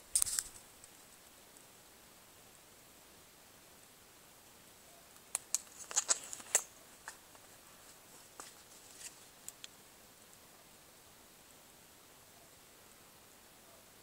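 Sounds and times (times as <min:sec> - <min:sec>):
light rustling: 0:05.5 - 0:09.7.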